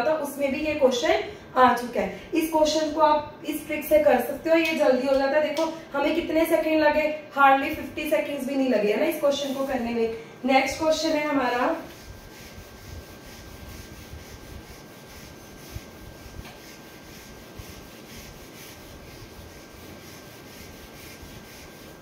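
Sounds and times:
eraser rubbing on whiteboard: 9.2 - 10.0, 11.5 - 22.0.

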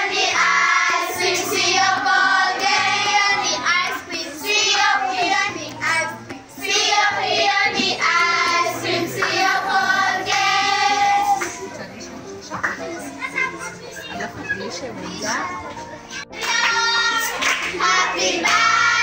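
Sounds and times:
children singing in chorus: 0.0 - 5.7, 6.6 - 11.4, 16.4 - 19.0.

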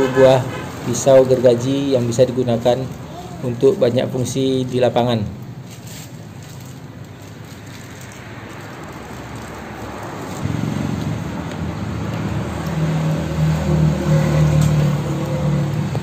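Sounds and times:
vehicle engine humming: 5.5 - 16.0.

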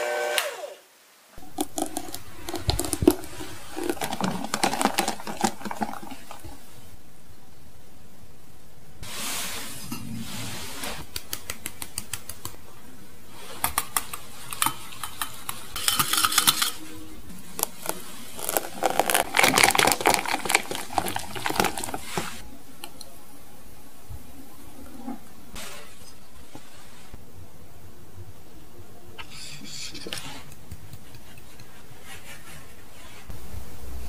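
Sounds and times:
liquid pouring into mould: 1.4 - 6.9, 17.4 - 22.4
whisk beating batter: 1.4 - 6.9, 11.0 - 12.6, 13.4 - 16.8, 17.6 - 22.4
utensil clinking glass bowl: 14.5 - 16.8.

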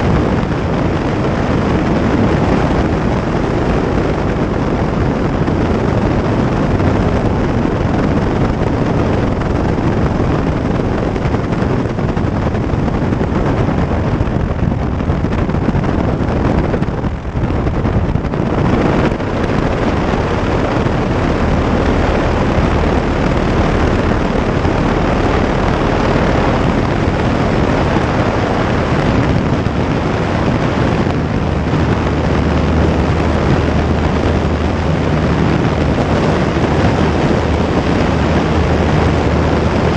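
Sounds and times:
deep steady hum: 0.0 - 39.9
light aircraft engine running: 0.0 - 39.9
wind rushing over microphone: 0.0 - 39.9.

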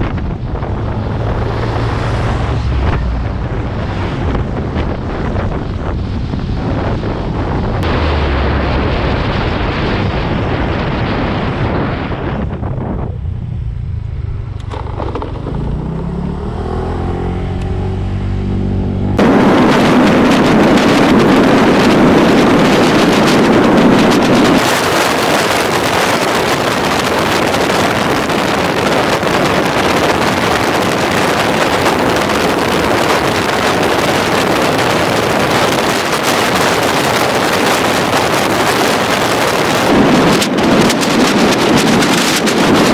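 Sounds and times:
wind rushing on microphone: 0.0 - 42.9
scooter engine accelerating: 13.2 - 21.1.

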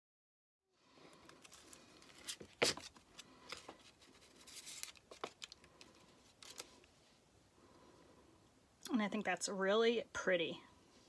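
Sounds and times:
rustling scrape: 1.1 - 7.2.

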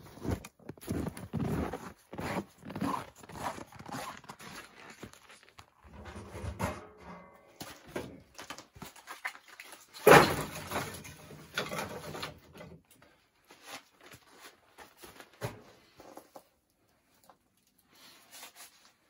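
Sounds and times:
metal stove rattling: 5.8 - 7.6
metal stove bang: 6.0 - 7.5.

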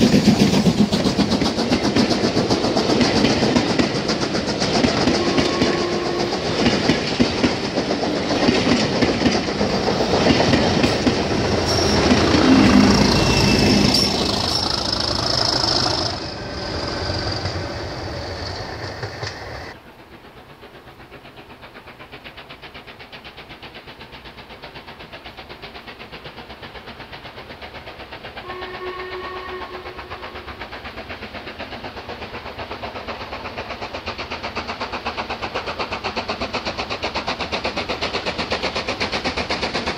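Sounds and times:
train coaches clicking over rail joints: 0.0 - 19.8, 20.9 - 39.9
distant steam whistle: 5.1 - 6.6, 10.9 - 17.9, 28.4 - 30.6
wheel squeal: 11.1 - 19.8.

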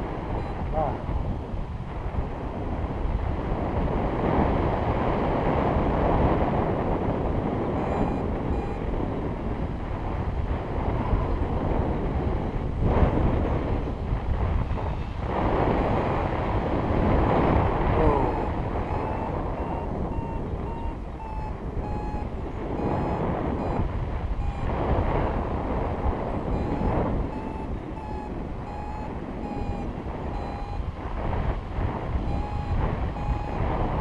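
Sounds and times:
variometer beeping: 0.0 - 1.0, 7.8 - 9.4, 18.0 - 31.1, 32.1 - 34.0
wind on microphone: 0.0 - 34.0.

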